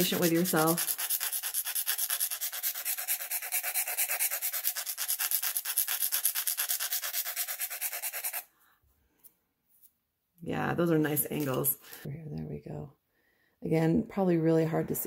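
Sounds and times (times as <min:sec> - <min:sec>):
file filing reed cane: 0:00.0 - 0:08.5.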